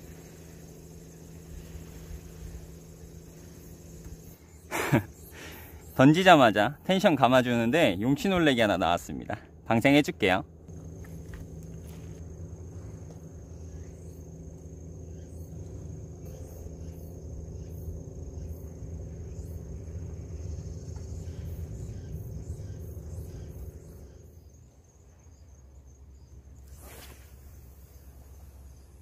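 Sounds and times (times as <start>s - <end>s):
insect trilling: 0.0s - 29.0s
low droning hum: 0.0s - 29.0s.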